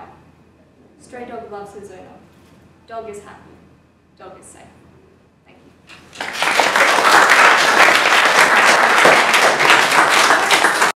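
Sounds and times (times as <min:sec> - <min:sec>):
audience applauding: 0:05.9 - 0:11.0.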